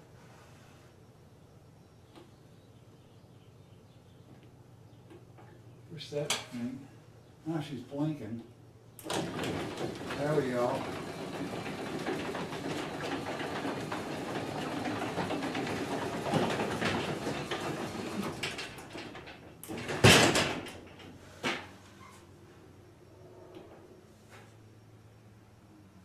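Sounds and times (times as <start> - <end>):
loud clunk: 9.0 - 21.8
garage door opener running: 9.0 - 22.2.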